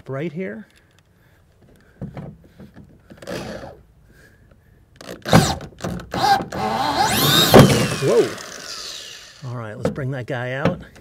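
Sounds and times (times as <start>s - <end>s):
drill scraping and knocking: 5.0s - 9.5s.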